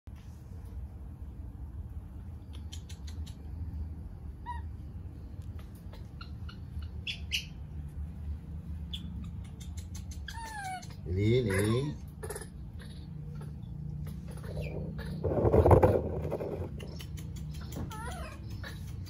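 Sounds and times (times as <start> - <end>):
low background rumble: 0.1 - 19.0
baby monkeys squeaking: 4.4 - 8.1, 8.8 - 19.0.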